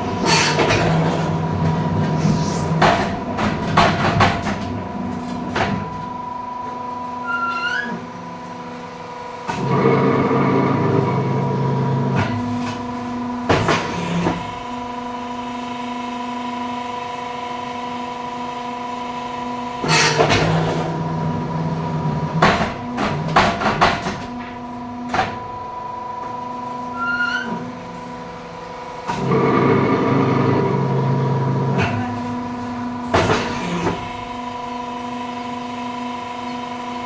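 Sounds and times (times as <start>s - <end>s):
deep pressing drone: 0.0s - 5.2s.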